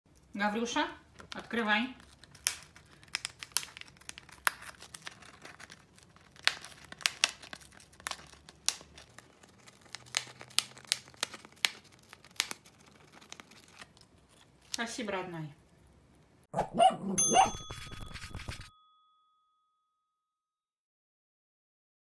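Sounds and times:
foil sachet crinkling: 1.1s - 15.0s.

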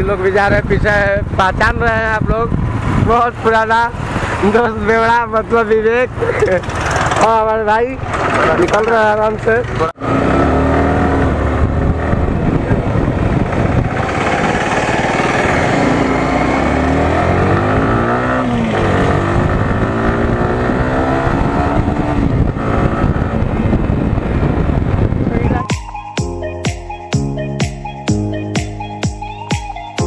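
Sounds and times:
wind noise on microphone: 0.0s - 9.1s, 10.0s - 25.8s
motorcycle engine accelerating: 3.9s - 25.6s.

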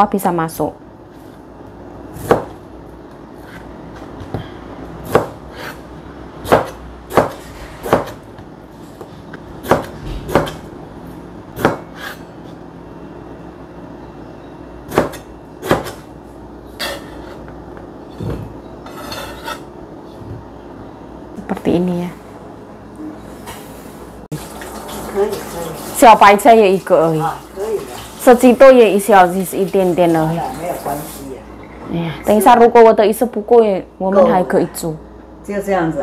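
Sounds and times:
cleaver chopping on cutting board: 5.0s - 5.8s, 6.4s - 8.2s, 9.6s - 10.6s, 11.6s - 12.2s, 14.9s - 16.0s.

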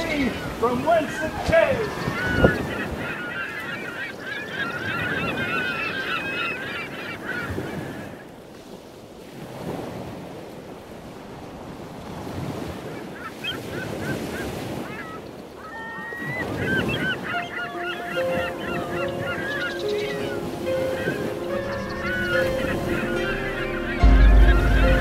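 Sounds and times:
gulls crying: 0.0s - 8.0s, 13.2s - 25.0s
waves washing: 0.0s - 25.0s
wind: 0.0s - 25.0s.

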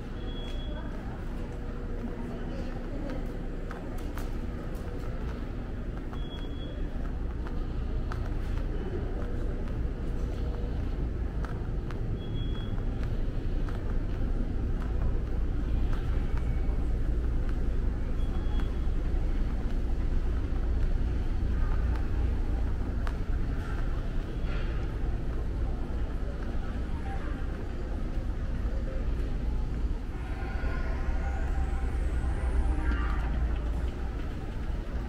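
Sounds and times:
faint high beeps: 0.0s - 1.1s, 6.1s - 7.0s, 12.1s - 13.0s, 18.0s - 19.0s
low rumble of mall ambience: 0.0s - 35.0s.

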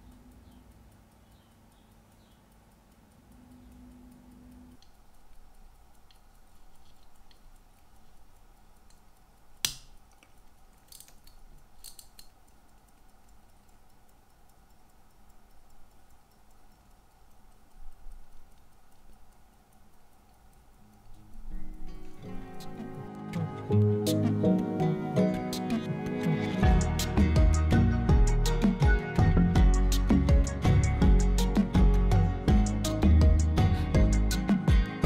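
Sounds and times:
faint steady hum: 0.0s - 35.0s
pocket watch ticking: 0.0s - 35.0s.

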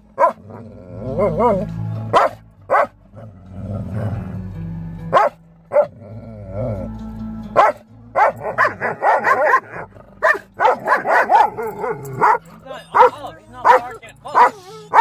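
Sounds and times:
music: 0.0s - 15.0s
dog yipping: 7.6s - 15.0s.

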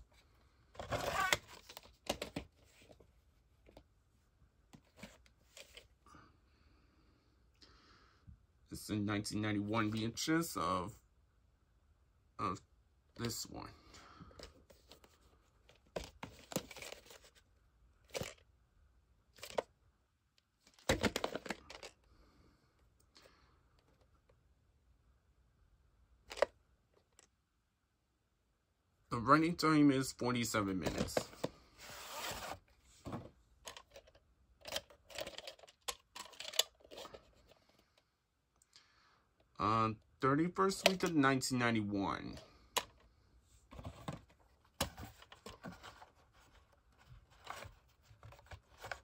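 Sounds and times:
cardboard sleeve rustling: 0.8s - 3.8s, 30.8s - 33.3s, 43.6s - 49.0s
plastic scraping against cardboard: 31.2s - 32.6s.

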